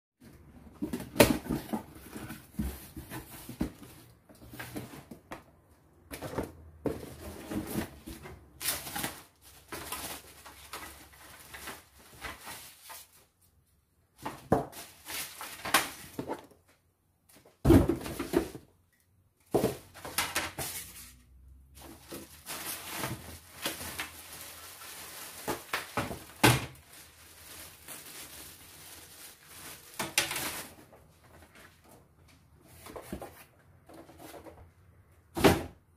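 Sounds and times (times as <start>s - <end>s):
plastic wrapping crinkling: 8.6s - 13.4s, 21.8s - 31.5s.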